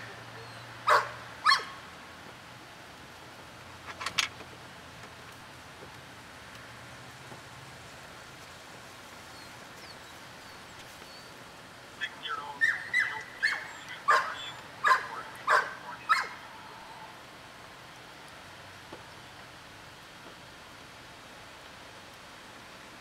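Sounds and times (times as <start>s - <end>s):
dog barking: 0.8s - 1.8s, 12.6s - 16.4s.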